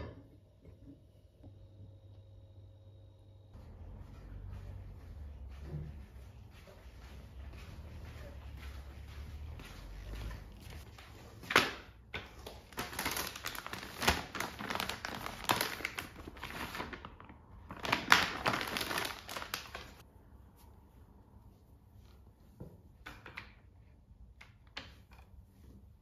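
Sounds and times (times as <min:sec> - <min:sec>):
plastic pack crinkling: 0:12.4 - 0:20.0.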